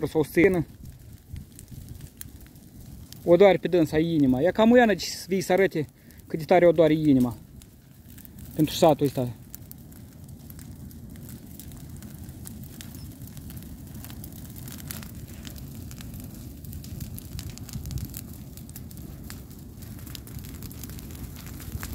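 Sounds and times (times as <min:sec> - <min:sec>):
brush fire crackling: 0:00.0 - 0:21.9.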